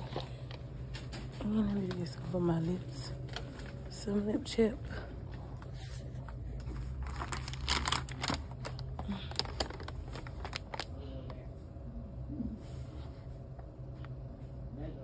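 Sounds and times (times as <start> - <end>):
steady low hum: 0.0 - 15.0
packaging crinkles and clicks: 6.9 - 10.9.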